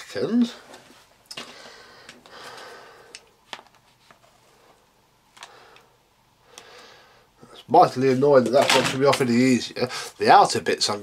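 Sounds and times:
plastic parts clicking and rustling: 8.4s - 9.5s.

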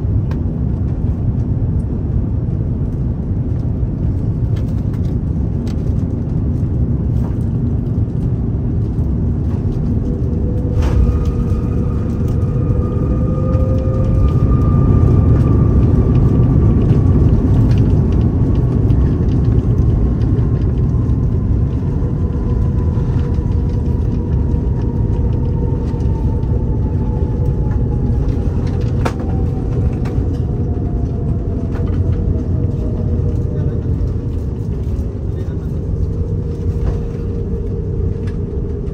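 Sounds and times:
aircraft cabin rumble: 0.0s - 38.9s
faint falling whine: 9.1s - 38.9s.

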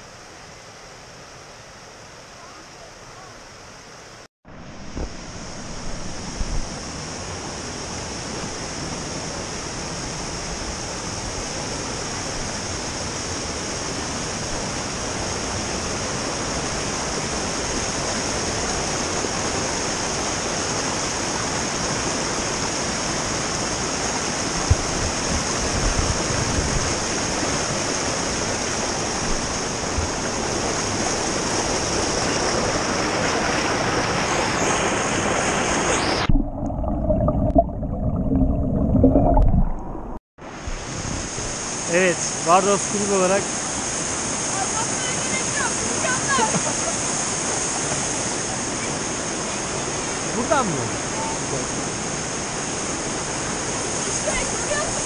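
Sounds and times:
stream rushing over rocks: 0.0s - 55.0s
microphone bumps and rumbles: 4.8s - 6.8s, 24.6s - 26.8s.

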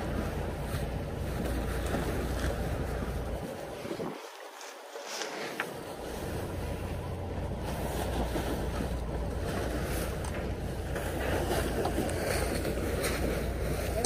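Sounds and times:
wind buffeting microphone: 0.0s - 4.6s
water rushing along hull: 0.0s - 14.0s.

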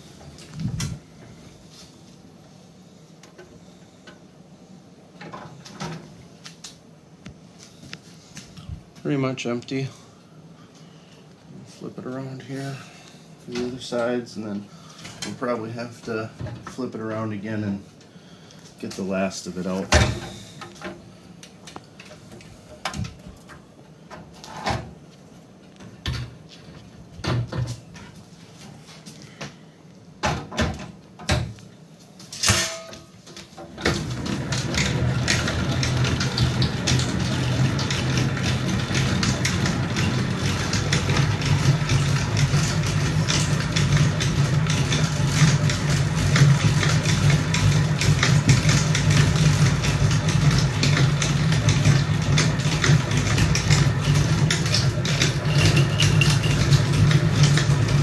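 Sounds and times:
honey extractor humming: 33.6s - 58.0s.

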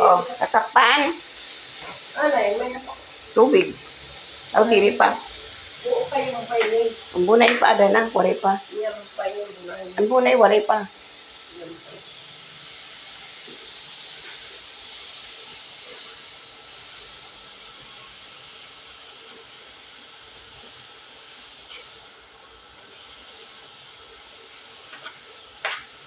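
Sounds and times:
vegetables sizzling in a frying pan: 0.0s - 26.0s
spatula clicking on pan: 24.9s - 26.0s.

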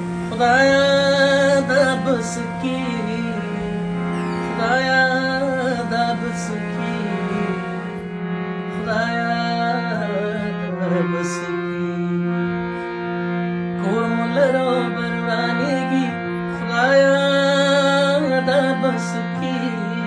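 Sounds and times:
wavering gliding melody: 0.0s - 11.0s
low drone: 0.0s - 12.9s.

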